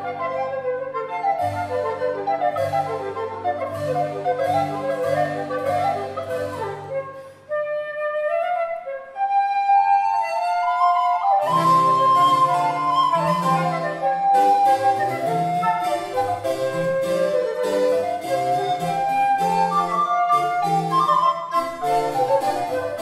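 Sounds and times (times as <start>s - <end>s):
flute: 0.0s - 23.0s
harpsichord: 1.4s - 7.3s, 11.4s - 23.0s.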